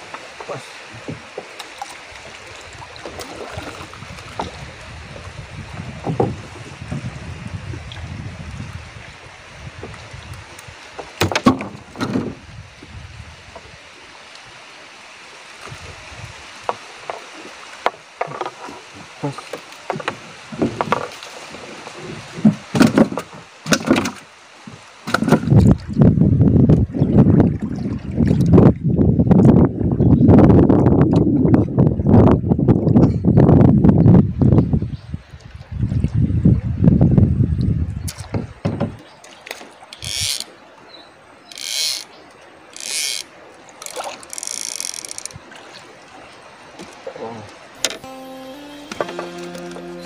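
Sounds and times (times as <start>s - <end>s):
wind rumble on microphone: 2.4s - 11.0s, 11.6s - 13.9s, 15.6s - 16.8s, 20.0s - 39.1s
knocks on wooden boat hull: 6.0s - 6.4s, 38.3s - 39.0s
fishing reel ratcheting: 40.0s - 40.5s, 41.5s - 42.0s, 42.8s - 45.3s.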